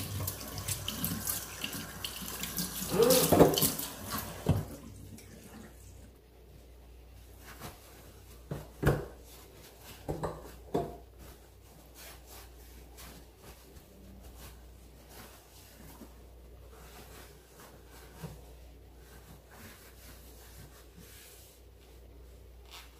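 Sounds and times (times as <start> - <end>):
dishes knocking and clinking: 3.2 - 3.8, 10.0 - 11.0
faint rubbing and handling: 5.5 - 22.9.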